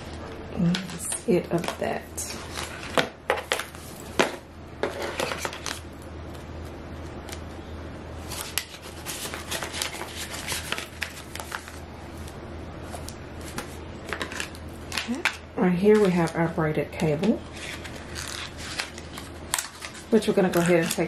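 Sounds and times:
low steady hum: 0:00.0 - 0:21.0
paper and cardboard rustling: 0:00.8 - 0:05.8, 0:08.2 - 0:11.8, 0:17.5 - 0:21.0.

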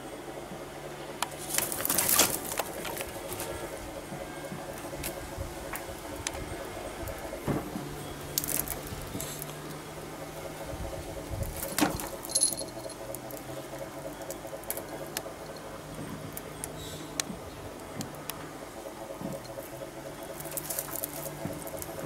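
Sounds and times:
steady low hum: 0:00.0 - 0:22.0
light clicks and rattles: 0:10.9 - 0:18.4.

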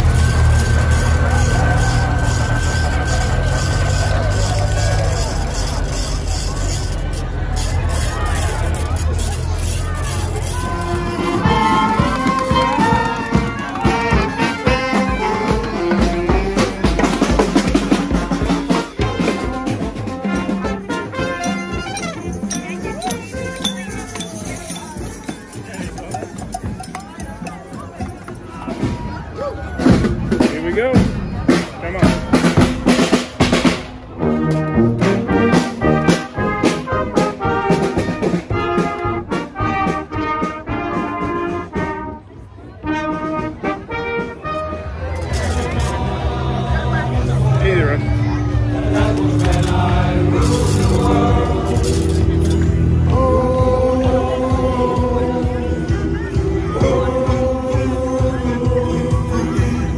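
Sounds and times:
clarinet and saxophone: 0:00.0 - 0:24.3, 0:34.2 - 0:45.7
brass instruments playing march: 0:00.0 - 0:29.0, 0:29.8 - 0:47.6
snare and bass drum beat: 0:11.2 - 0:29.2, 0:29.8 - 0:34.0
snare drum: 0:29.8 - 0:34.0.

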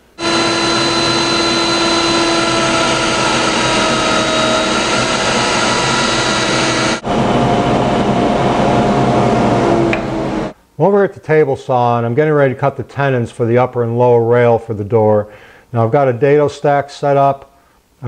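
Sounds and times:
router cutting wood: 0:00.0 - 0:10.5.

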